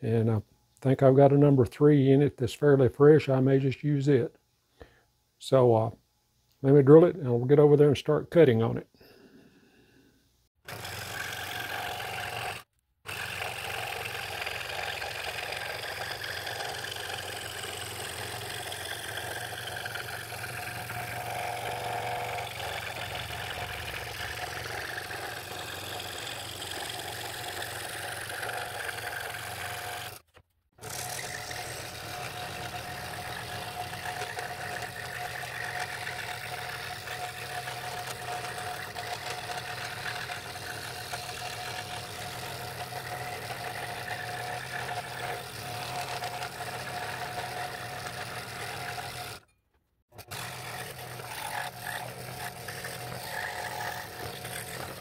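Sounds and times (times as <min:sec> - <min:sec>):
scroll saw cutting thin wood: 0:10.7 - 0:49.6, 0:50.2 - 0:55.0.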